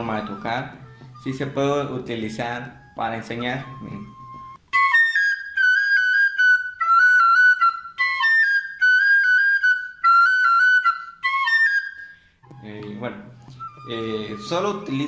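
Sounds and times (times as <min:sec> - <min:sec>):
recorder playing quick melody: 0:00.0 - 0:05.4.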